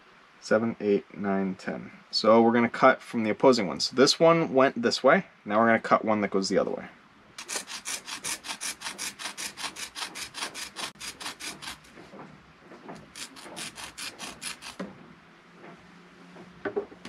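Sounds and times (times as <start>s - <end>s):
rope strands rubbing and scraping: 7.4s - 15.0s.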